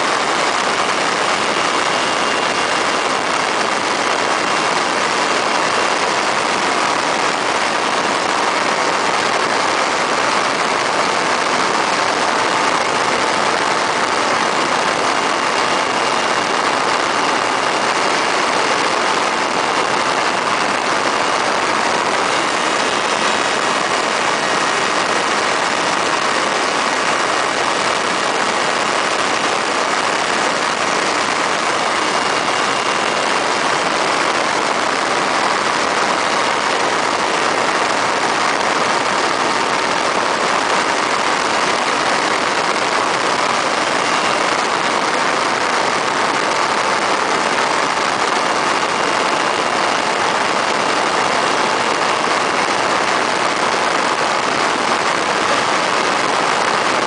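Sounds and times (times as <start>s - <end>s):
aircraft engine and propeller droning: 0.0s - 37.3s.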